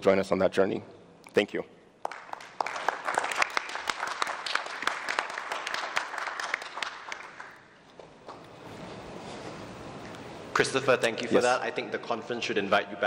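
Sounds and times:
audience applauding: 2.0s - 7.8s.

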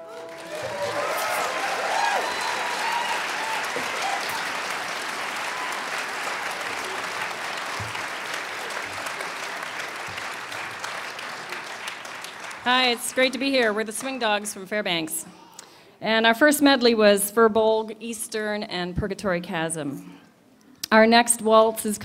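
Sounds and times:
audience applauding: 0.0s - 14.2s.

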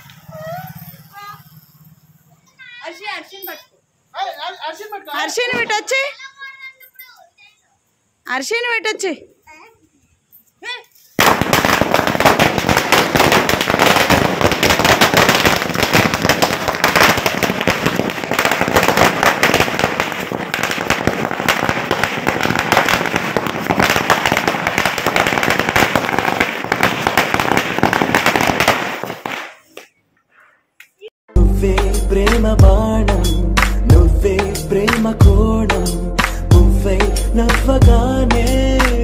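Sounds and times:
dense crackling and popping: 11.2s - 29.5s.

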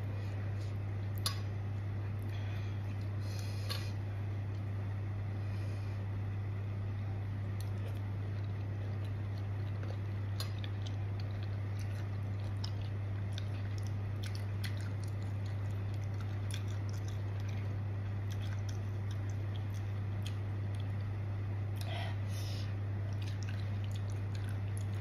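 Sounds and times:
steady low hum: 0.0s - 25.0s
close-up chewing: 7.4s - 22.0s, 23.0s - 25.0s.

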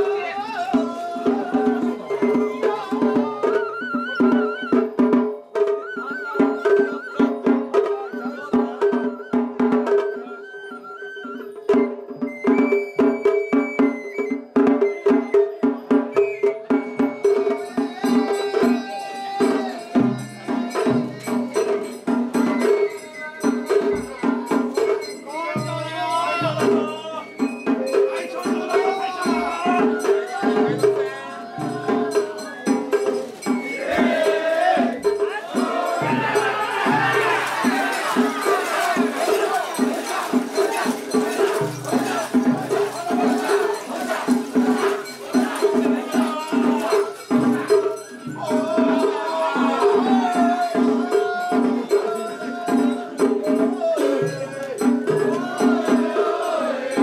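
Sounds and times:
taiko drums beating: 0.0s - 10.6s, 11.4s - 57.0s
bamboo flute playing: 0.0s - 18.8s, 26.8s - 29.0s
rhythmic festival music: 0.0s - 57.0s
bearers chanting in time: 16.7s - 57.0s.

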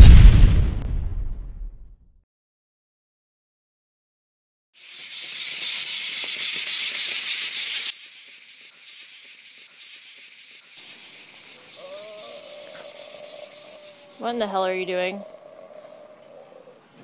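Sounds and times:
steady hiss: 4.8s - 14.9s.

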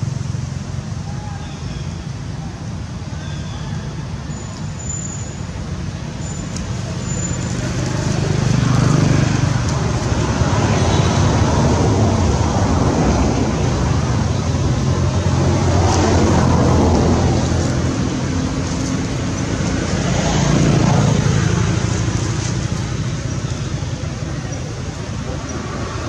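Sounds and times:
vehicle engine running: 6.6s - 26.0s.

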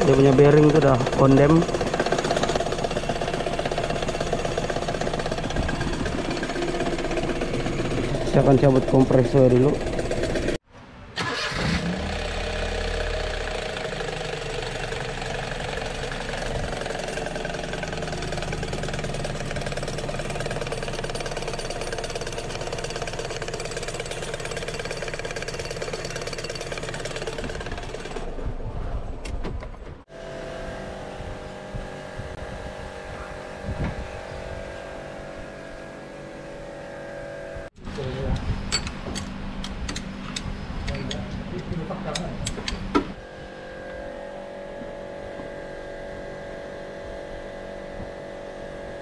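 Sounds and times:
metallic rattle of engine pulley: 0.0s - 10.6s, 12.6s - 28.4s.

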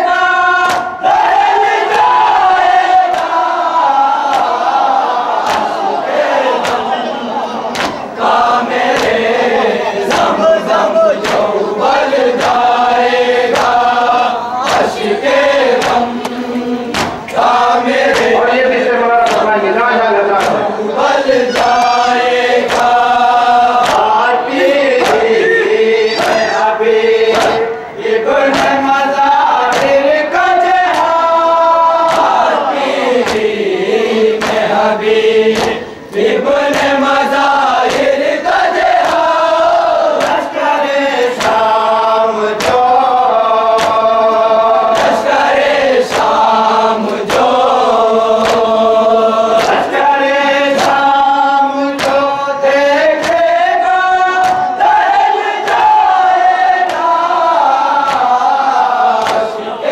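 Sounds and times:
lead singer: 0.0s - 59.9s
men chanting a lament: 0.0s - 59.9s
hand slaps on chest: 0.6s - 0.9s, 3.1s - 3.4s, 5.4s - 5.8s, 6.6s - 6.9s, 7.7s - 8.0s, 8.9s - 9.2s, 11.2s - 11.5s, 15.8s - 17.5s, 22.6s - 22.9s, 23.8s - 24.1s, 29.7s - 30.0s, 30.9s - 31.2s, 32.1s - 32.4s, 33.2s - 33.5s, 35.6s - 36.9s, 37.8s - 38.1s, 40.2s - 40.4s, 41.2s - 41.6s, 42.6s - 42.8s, 43.8s - 44.0s, 44.9s - 45.2s, 46.1s - 46.3s, 48.4s - 48.7s, 52.0s - 52.2s, 54.4s - 54.7s, 58.0s - 58.3s, 59.2s - 59.5s.

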